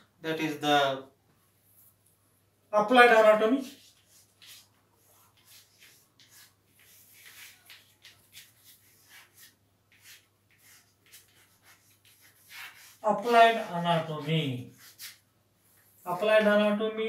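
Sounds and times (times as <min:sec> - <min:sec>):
chalk scratching on blackboard: 0:03.6 - 0:16.4.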